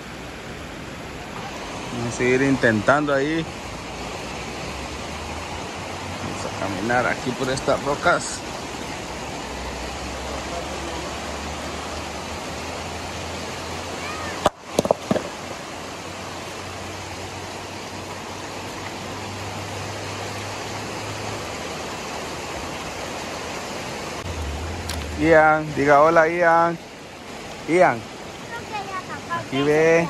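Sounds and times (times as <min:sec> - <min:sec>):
shallow river over stones: 0:00.0 - 0:30.0
rock cracking on boulder: 0:14.4 - 0:15.4
small rock knocks: 0:14.4 - 0:15.4.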